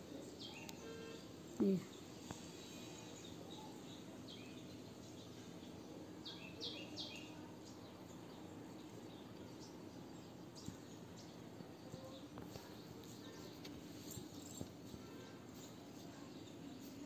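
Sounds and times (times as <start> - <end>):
faint background noise: 0.0 - 17.0.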